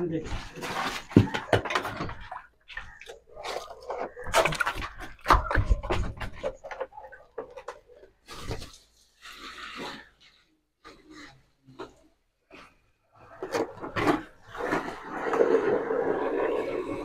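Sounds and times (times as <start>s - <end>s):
plastic drum knocking and scraping: 3.9s - 8.0s.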